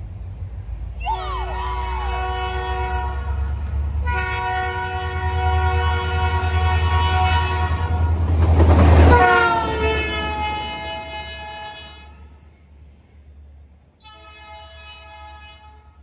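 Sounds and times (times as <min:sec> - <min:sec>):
train rumble: 0:00.0 - 0:16.0
train air horn: 0:01.0 - 0:08.2, 0:09.0 - 0:12.4, 0:14.0 - 0:16.0.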